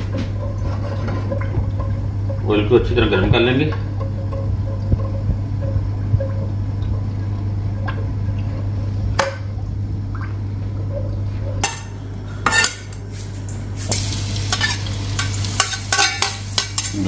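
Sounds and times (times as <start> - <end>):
low hum: 0.0 - 15.7
hot oil hissing: 13.1 - 17.0
metal utensil clinking on pot: 14.5 - 17.0.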